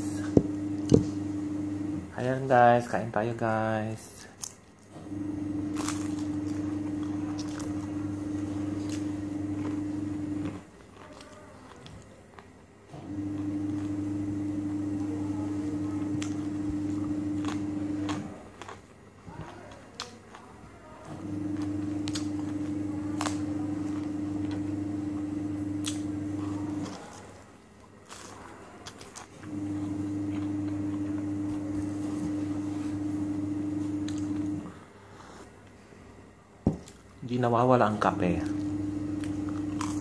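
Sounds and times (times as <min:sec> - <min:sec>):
steady machine hum: 0:00.0 - 0:02.5, 0:05.0 - 0:10.7, 0:13.0 - 0:18.4, 0:21.1 - 0:27.0, 0:29.4 - 0:34.8, 0:37.8 - 0:40.0
cucumber being chewed: 0:05.7 - 0:08.0, 0:08.6 - 0:14.2, 0:15.9 - 0:24.6, 0:25.8 - 0:33.0, 0:38.3 - 0:40.0.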